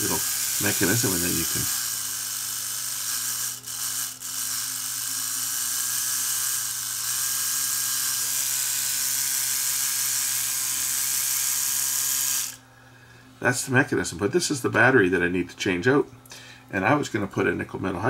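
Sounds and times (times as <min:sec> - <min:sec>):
electric toothbrush whirring: 0:00.0 - 0:12.6.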